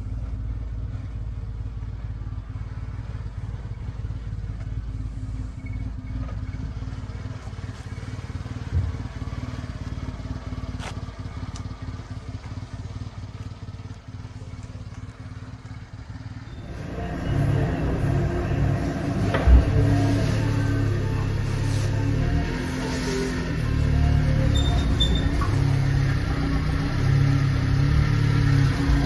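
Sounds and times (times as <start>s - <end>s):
truck engine idling: 0.0s - 29.0s
low thump: 8.6s - 9.2s, 19.2s - 20.1s.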